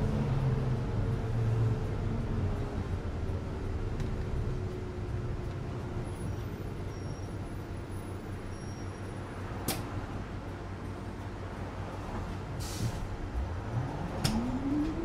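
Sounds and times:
bus engine idling: 0.0s - 15.0s
sharp click: 9.6s - 9.9s.

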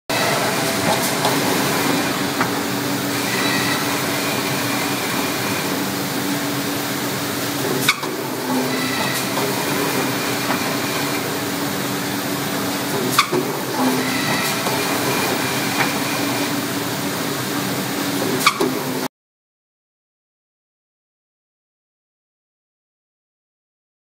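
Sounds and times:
machine whirring and humming: 0.1s - 19.1s.

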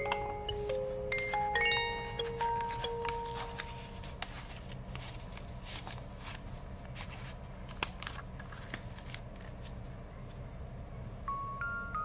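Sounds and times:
paper crinkles: 2.2s - 9.8s
paper rustling and scraping: 2.3s - 9.8s.

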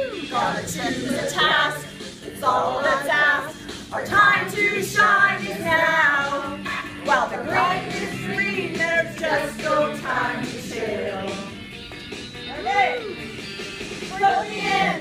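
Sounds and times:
people singing: 0.0s - 11.6s, 14.1s - 15.0s
rock backing track: 3.5s - 14.2s.

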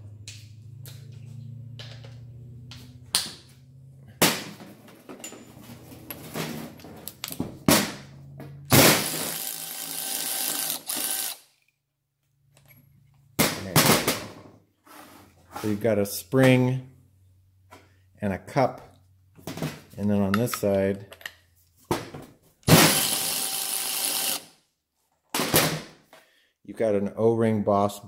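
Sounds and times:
cordless power ratchet running: 9.0s - 11.4s, 22.7s - 24.5s.

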